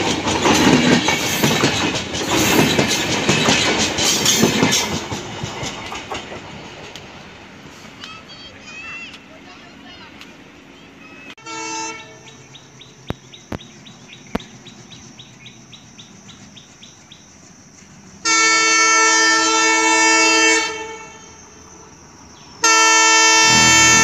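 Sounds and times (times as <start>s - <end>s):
locomotive air horn blast: 11.4s - 12.3s, 18.2s - 21.2s, 22.6s - 24.0s.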